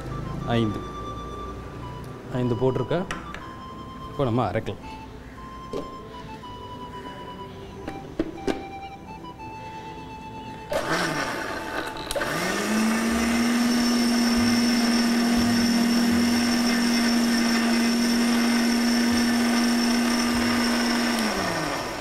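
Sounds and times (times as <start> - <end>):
mixer grinder motor running: 10.7 - 22.0
mixer click: 11.7 - 12.6.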